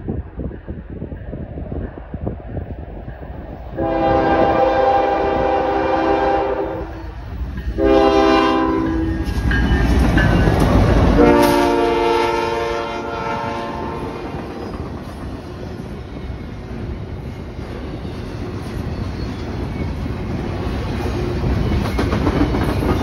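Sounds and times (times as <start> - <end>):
locomotive rumbling past: 0.0 - 23.0
locomotive air horn: 3.8 - 7.1, 7.8 - 9.1, 11.2 - 14.4
wheels clattering on rail: 7.1 - 11.8, 14.2 - 23.0.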